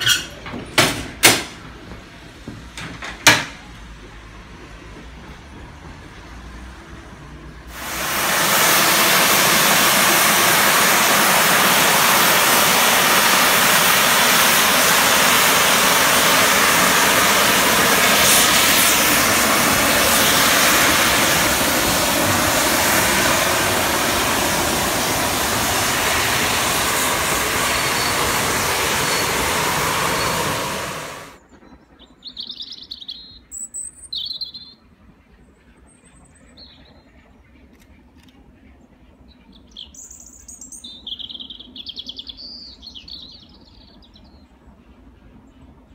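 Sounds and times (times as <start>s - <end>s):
steam locomotive hissing: 3.8s - 31.4s
bird chirps: 31.6s - 34.8s, 39.4s - 44.5s.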